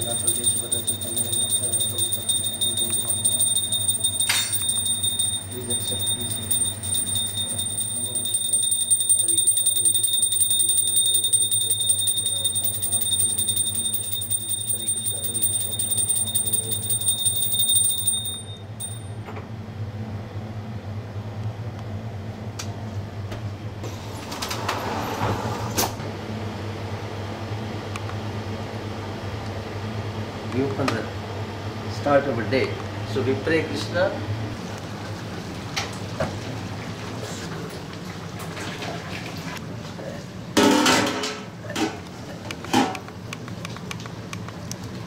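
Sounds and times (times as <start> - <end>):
hand bell ringing rapidly: 0.0 - 19.2.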